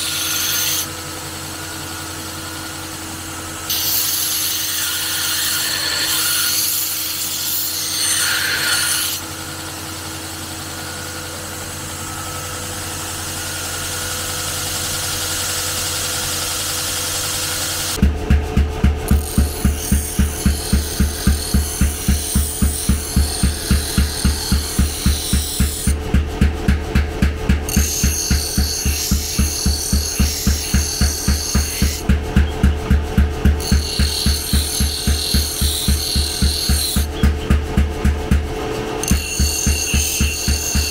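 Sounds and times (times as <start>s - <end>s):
rhythmic deep thuds: 18.0s - 39.0s
power tool motor humming: 19.1s - 26.1s, 27.7s - 32.9s, 33.5s - 37.5s.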